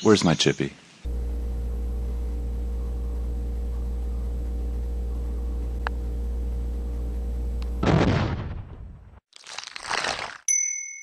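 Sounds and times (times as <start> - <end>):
steady low hum: 1.1 - 7.9.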